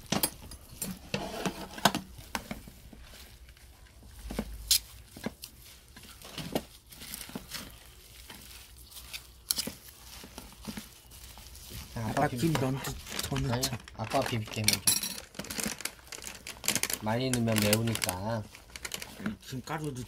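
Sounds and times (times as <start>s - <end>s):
metal spoons scraping plastic bowl: 0.2s - 2.1s
plastic packet crinkling: 2.0s - 20.0s
soft squish of rice: 2.1s - 14.5s.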